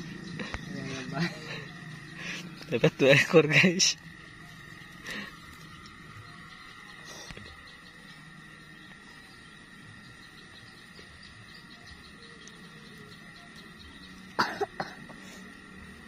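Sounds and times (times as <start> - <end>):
person coughing: 14.4 - 15.1.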